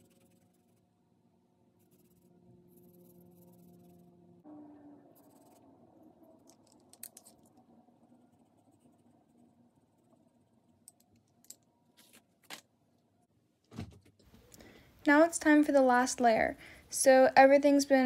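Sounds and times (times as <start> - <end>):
pencil scratching on paper: 0.0 - 0.8, 1.8 - 4.1, 5.2 - 5.6
thump: 13.7 - 14.1.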